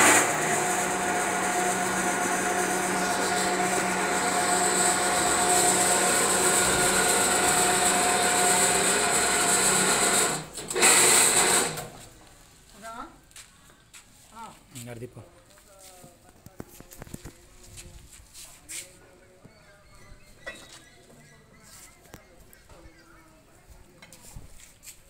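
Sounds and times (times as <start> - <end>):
hoist motor running under load: 0.0 - 11.9.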